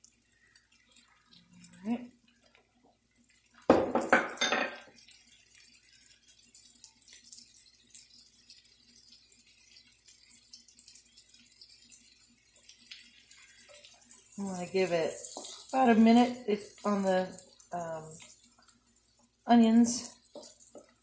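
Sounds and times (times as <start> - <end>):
vegetables sizzling in oil: 3.2 - 21.0
kitchenware clattering: 3.7 - 5.0.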